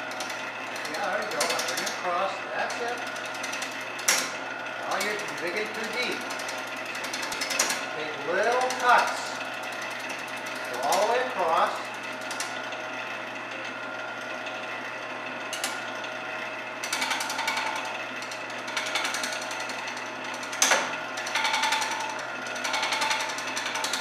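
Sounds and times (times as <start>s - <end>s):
tool chattering against wood: 0.0s - 12.6s, 16.8s - 24.0s
gouge cutting spinning wood: 0.0s - 24.0s
wood lathe motor running: 0.0s - 24.0s.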